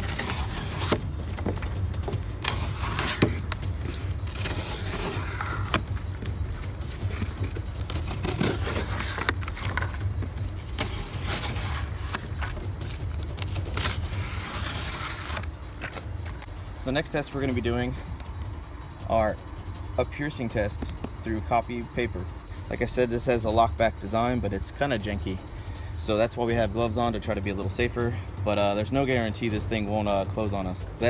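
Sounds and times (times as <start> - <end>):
knife slicing cardboard: 0.0 - 10.0, 10.6 - 16.5.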